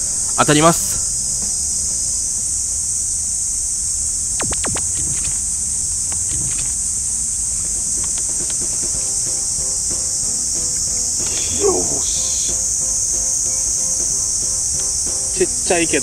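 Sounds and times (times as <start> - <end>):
insects shrilling: 0.0 - 16.0
brief swishes: 4.4 - 5.4.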